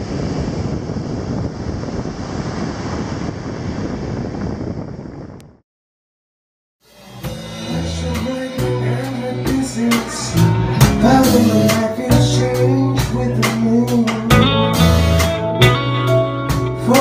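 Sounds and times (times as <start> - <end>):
electric bass: 6.8 - 17.0
keyboard: 6.8 - 17.0
acoustic guitar: 7.2 - 17.0
drum kit hits: 7.2 - 17.0.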